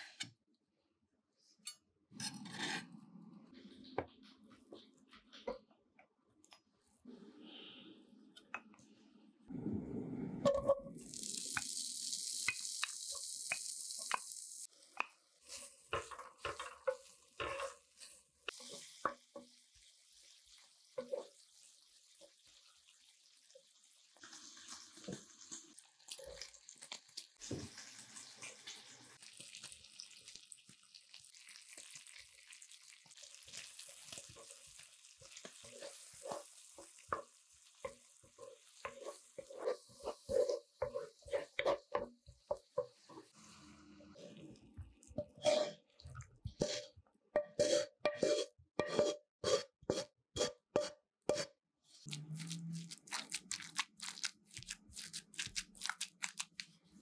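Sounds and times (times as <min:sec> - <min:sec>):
bacon sizzling in frying pan: 0:11.0 - 0:43.1
spatula scraping against pan: 0:15.4 - 0:19.2, 0:34.0 - 0:43.9, 0:45.2 - 0:45.9, 0:46.6 - 0:51.5.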